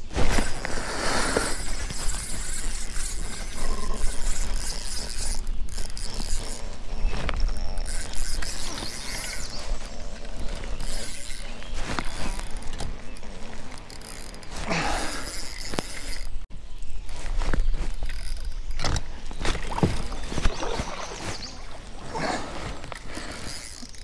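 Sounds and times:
fishing reel winding and clicking: 0:00.3 - 0:16.4, 0:17.9 - 0:18.9, 0:22.9 - 0:24.0.

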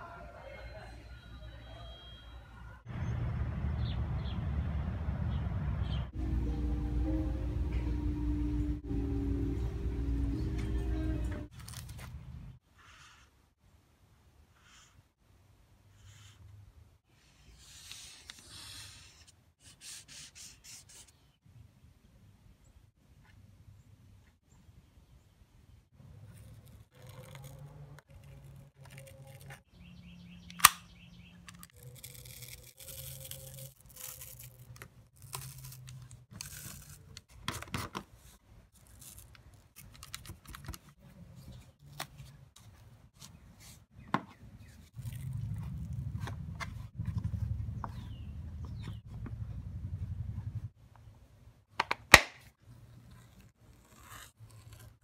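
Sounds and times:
knife cutting foam: 0:53.0 - 0:55.0.

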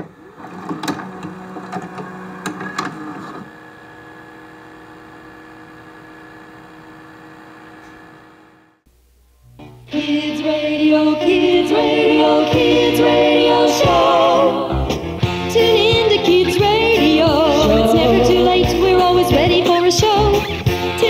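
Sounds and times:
tape machine clicks: 0:00.0 - 0:03.5
whirring motor hum: 0:00.0 - 0:09.5.

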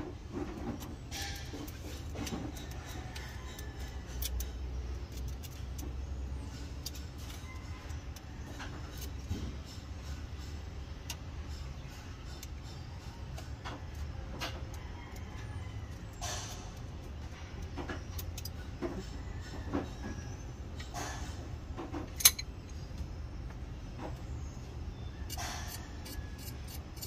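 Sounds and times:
wrench clicking and clinking on metal: 0:01.1 - 0:19.6, 0:22.0 - 0:22.6, 0:25.3 - 0:27.0.

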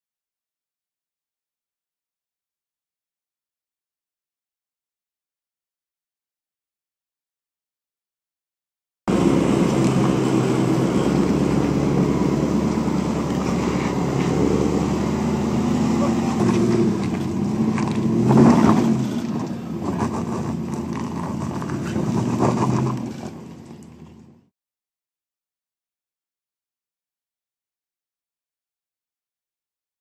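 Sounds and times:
suv engine at low revs: 0:09.1 - 0:24.5.

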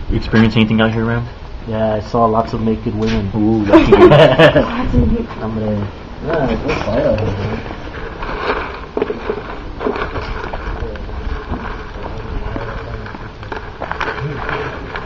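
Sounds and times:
footsteps crunching on rough ground: 0:06.4 - 0:15.0.

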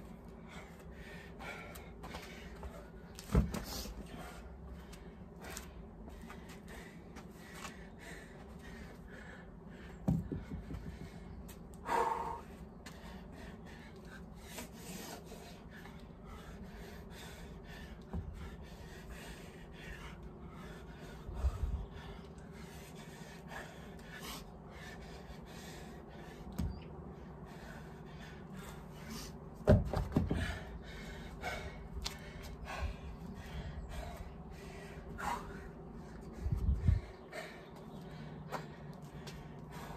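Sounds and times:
man breathing hard with gasps: 0:00.3 - 0:26.7, 0:30.1 - 0:39.9
thumps of feet and weights: 0:10.0 - 0:11.2, 0:29.6 - 0:30.6.

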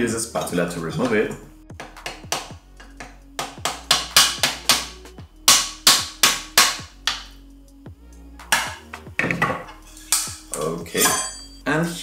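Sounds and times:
sharp ringing strikes: 0:10.1 - 0:11.7.

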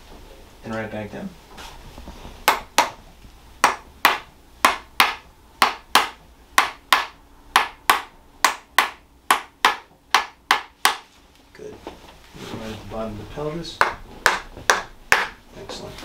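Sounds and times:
mallet tapping adjusting tool: 0:03.6 - 0:11.0.

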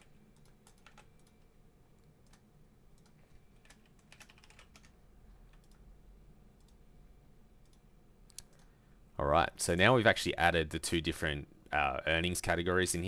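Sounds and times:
typing on computer keyboard: 0:00.0 - 0:01.5, 0:03.0 - 0:05.8.

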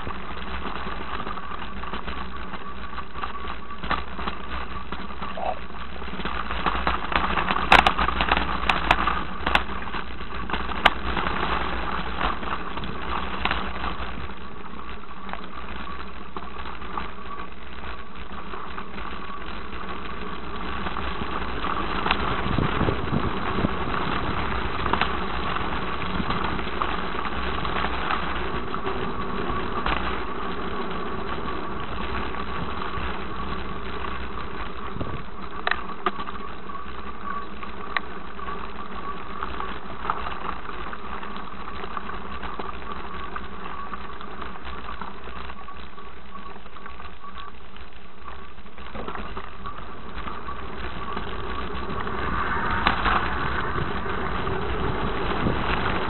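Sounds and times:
vehicle motor running: 0:00.0 - 0:46.4, 0:48.2 - 0:56.0
constant whining tone: 0:00.0 - 0:56.0.

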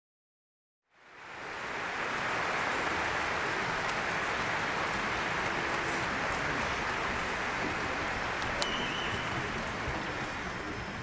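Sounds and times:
audience applauding: 0:01.1 - 0:11.0.

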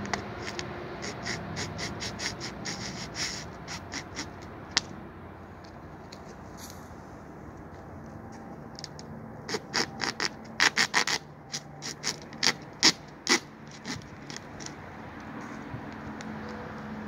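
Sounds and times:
serrated blade sawing plastic: 0:00.0 - 0:04.8, 0:09.5 - 0:14.8.

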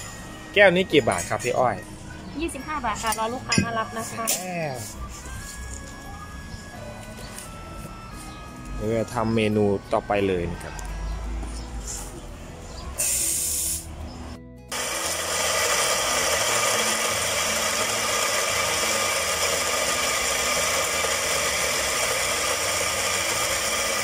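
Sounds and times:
coffee grinder grinding: 0:14.7 - 0:24.0.

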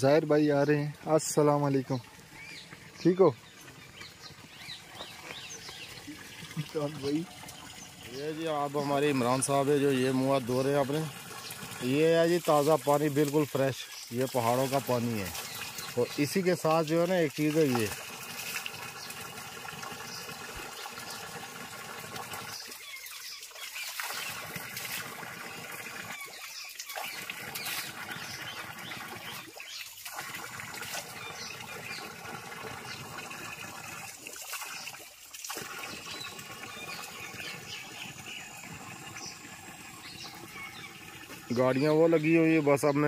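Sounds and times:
birds chirping faintly: 0:00.0 - 0:18.0, 0:35.6 - 0:43.0
water pouring and splashing on stones: 0:00.0 - 0:43.0.

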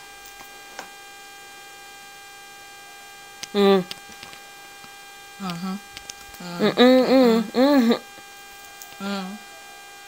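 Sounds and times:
electrical mains hum: 0:00.0 - 0:10.0
faint high whining tones: 0:00.0 - 0:10.0
woman humming closed-mouth: 0:05.4 - 0:08.2, 0:09.0 - 0:09.4.

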